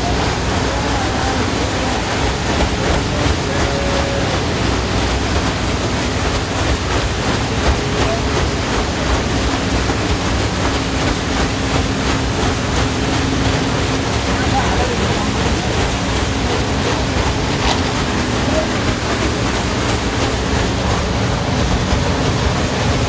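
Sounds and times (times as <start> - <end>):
rushing water: 0.0 - 23.0.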